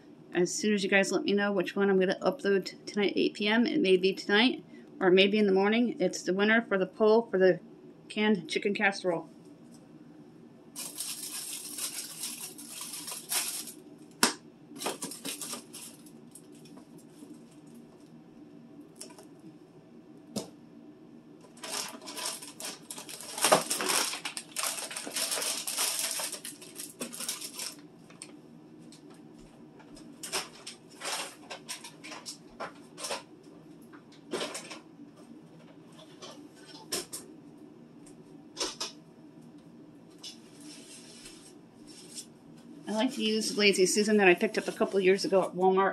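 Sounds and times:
steady low hum: 0.0 - 45.9
plastic packaging crinkling: 10.8 - 14.2, 14.8 - 17.8, 21.5 - 28.4, 30.2 - 33.3.

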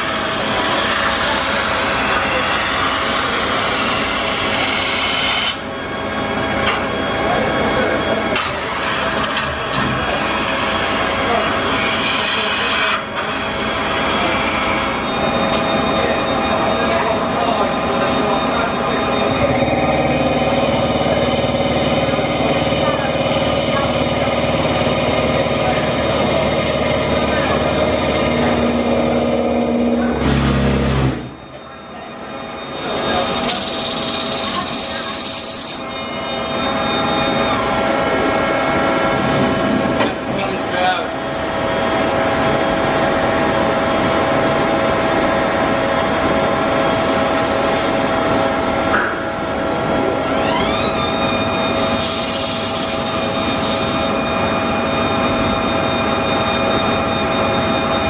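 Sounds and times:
metal-spinning lathe humming: 0.0 - 58.0.

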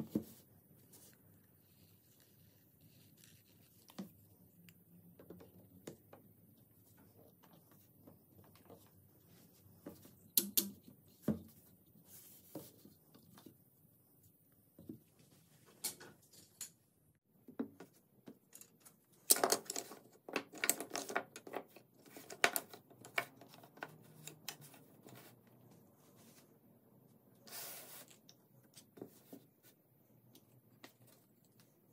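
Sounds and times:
wooden parts clicking and knocking: 17.6 - 24.7.

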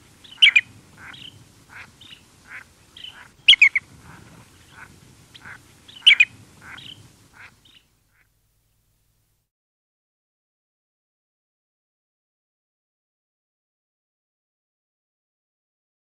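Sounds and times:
distant bird calls: 0.0 - 8.4
light wind: 0.0 - 9.4
shorebird contact calls: 0.2 - 8.3.

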